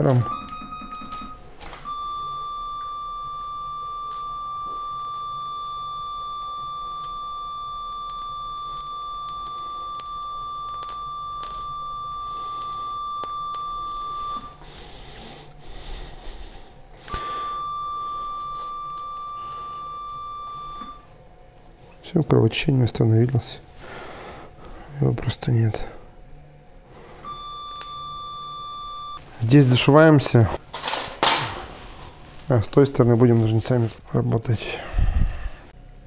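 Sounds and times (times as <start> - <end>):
high steady activation tone: 0.0 - 21.5, 24.8 - 30.6.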